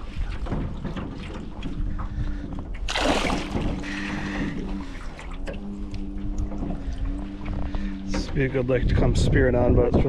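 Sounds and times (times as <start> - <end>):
steady low hum: 0.0 - 10.0
fish splashing at surface: 2.9 - 5.1.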